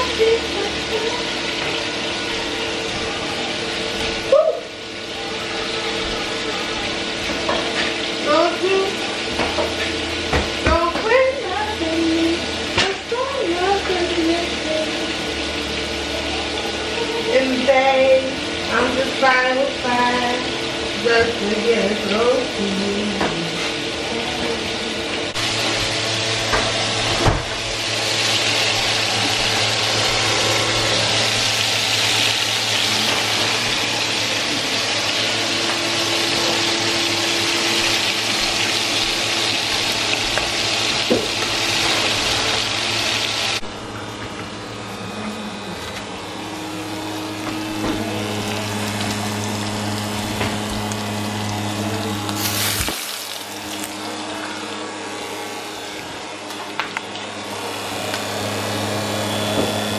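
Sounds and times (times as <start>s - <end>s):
food sizzling in skillets: 27.7s - 43.7s, 46.4s - 54.1s.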